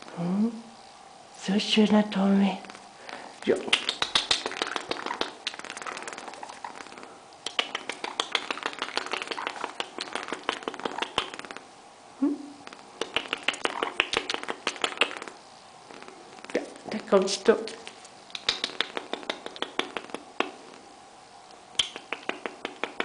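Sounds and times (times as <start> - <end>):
cockatoo clicking and tapping: 3.4 - 6.9, 7.5 - 11.6, 12.7 - 16.6, 17.7 - 20.6, 21.8 - 23.0.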